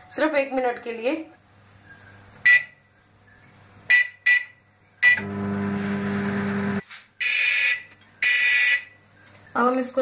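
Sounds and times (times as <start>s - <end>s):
long microwave beep: 2.4s - 2.8s, 3.9s - 5.8s
microwave oven humming: 5.1s - 6.8s.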